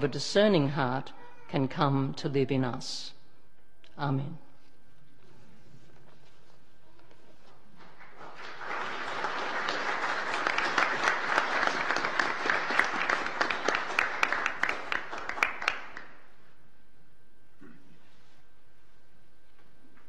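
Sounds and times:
crowd applauding: 0:07.8 - 0:16.2.

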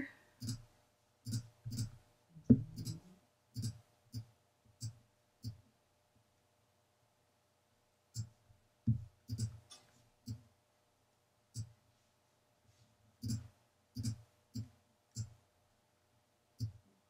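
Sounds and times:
computer mouse clicking: 0:00.4 - 0:00.6, 0:01.2 - 0:02.0, 0:02.6 - 0:03.0, 0:03.6 - 0:05.6, 0:09.3 - 0:10.4, 0:13.2 - 0:15.4.

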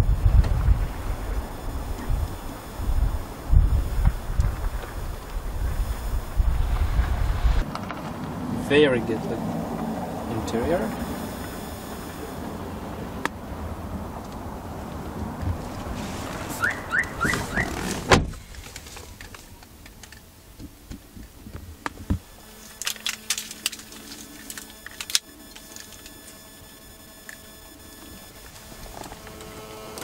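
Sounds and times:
faint electronic whine: 0:00.0 - 0:07.7, 0:08.6 - 0:15.0, 0:21.1 - 0:30.0
car door shutting: 0:15.4 - 0:18.7.

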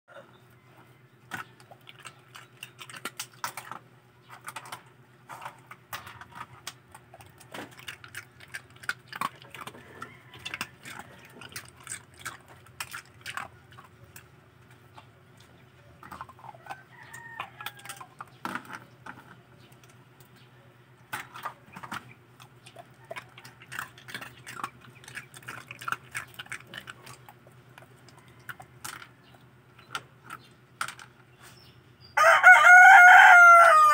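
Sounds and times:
dog crunching ice cubes: 0:01.2 - 0:20.4, 0:21.0 - 0:31.3.

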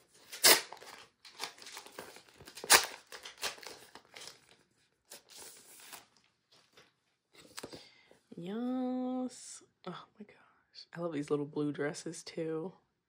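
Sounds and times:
plastic sleeve crinkling: 0:00.0 - 0:06.9.

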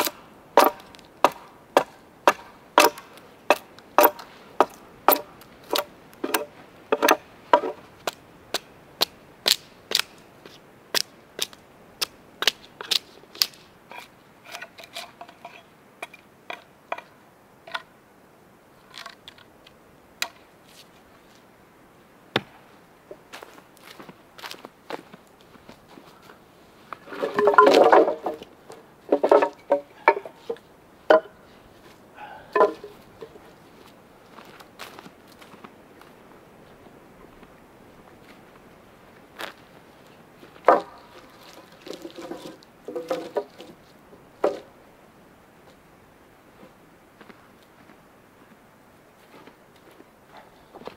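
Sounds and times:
axe chopping wooden log: 0:00.0 - 0:07.8, 0:22.4 - 0:22.6, 0:32.6 - 0:32.9.

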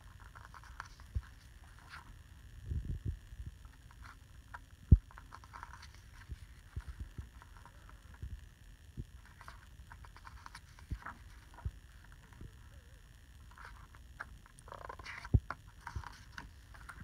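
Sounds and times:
pages turning and rustling: 0:00.2 - 0:02.1, 0:03.7 - 0:08.0, 0:09.2 - 0:12.2, 0:13.5 - 0:17.0.

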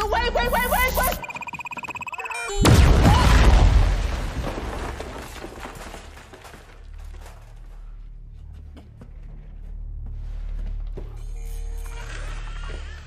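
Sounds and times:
electronic beeping: 0:00.0 - 0:02.7
crackling and clattering debris: 0:03.2 - 0:08.8.

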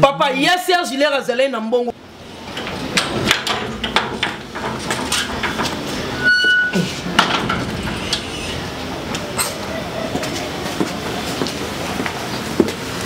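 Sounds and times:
metal gate clanking and rattling: 0:02.5 - 0:09.7
gate squeak: 0:05.2 - 0:08.7.

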